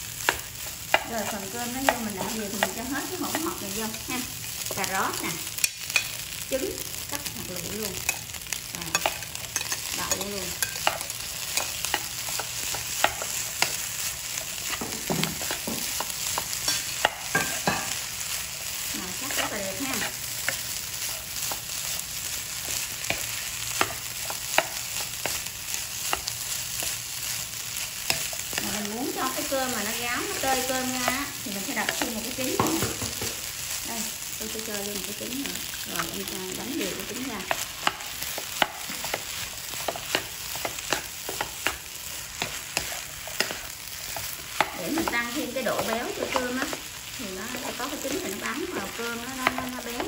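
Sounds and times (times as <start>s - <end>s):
rice sizzling in pan: 0.0s - 50.0s
spatula tapping pan: 0.2s - 3.7s, 5.6s - 6.2s, 8.9s - 18.0s, 22.6s - 27.0s, 37.2s - 46.9s, 47.5s - 50.0s.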